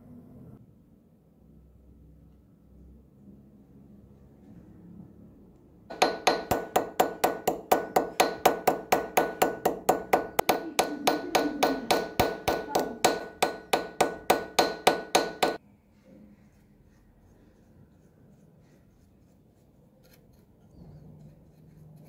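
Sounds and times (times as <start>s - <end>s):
hammer striking metal plate: 5.9s - 15.6s.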